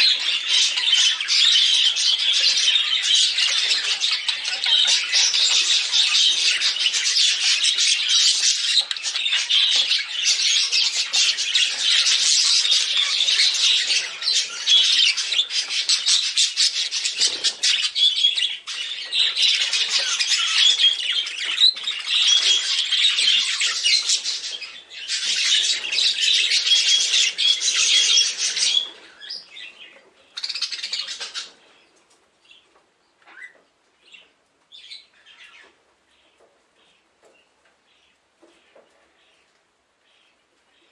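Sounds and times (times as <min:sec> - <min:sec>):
budgerigars chirping: 0:00.0 - 0:31.9.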